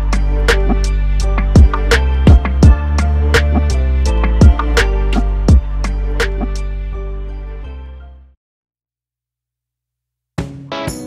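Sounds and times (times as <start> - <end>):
background music with deep bass: 0.0 - 8.3
drum hit: 1.6 - 2.8.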